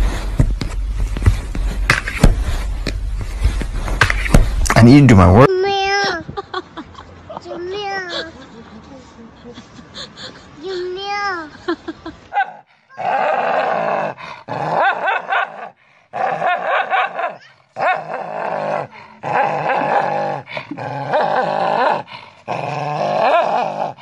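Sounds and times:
dog growling and snarling: 0:12.9 - 0:24.0.

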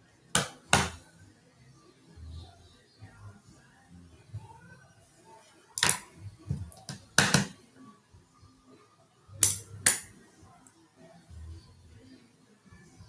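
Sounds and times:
makeup items clicking and knocking: 0:00.4 - 0:01.0, 0:06.6 - 0:07.6, 0:09.4 - 0:10.1.

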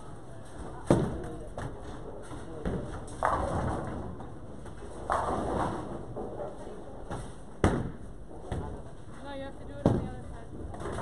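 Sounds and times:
bowling pins clattering: 0:00.4 - 0:09.1.

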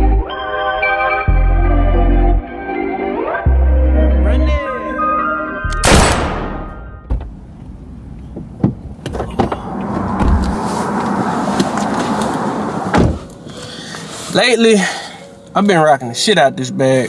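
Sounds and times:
rush of outside noise: 0:07.1 - 0:15.5
car door shutting: 0:08.3 - 0:13.4.

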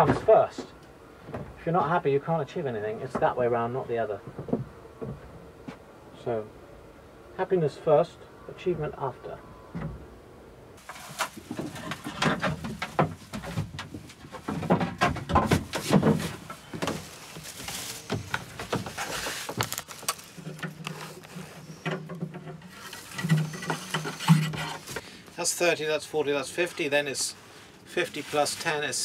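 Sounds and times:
handling knocks and rustles: 0:10.8 - 0:25.7.

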